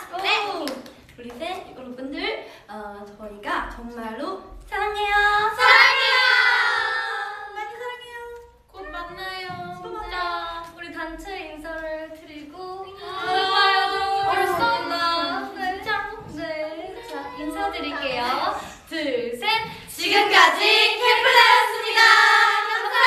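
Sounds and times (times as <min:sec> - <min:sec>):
young women singing together: 0:04.7 - 0:07.8, 0:09.2 - 0:23.0.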